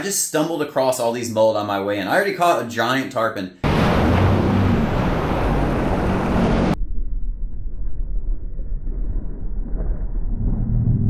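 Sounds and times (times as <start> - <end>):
water rushing: 3.6 - 6.8
watercraft engine drone: 3.6 - 6.8.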